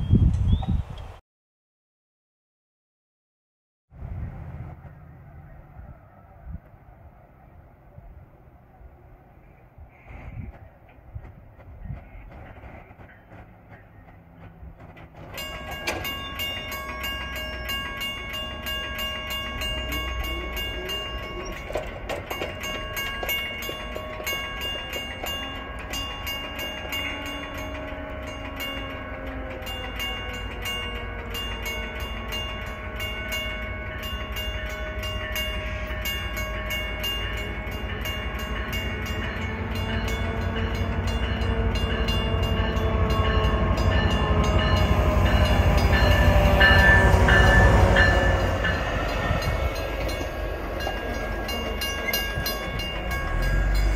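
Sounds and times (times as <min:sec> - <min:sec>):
train rumbling: 0:03.9 - 0:53.9
railroad crossing bell ringing: 0:13.1 - 0:53.9
train horn: 0:26.3 - 0:37.9, 0:38.8 - 0:53.9.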